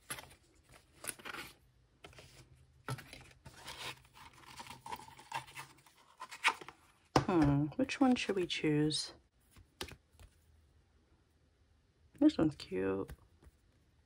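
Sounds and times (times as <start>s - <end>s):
cardboard scraping and rustling: 0.0s - 6.7s.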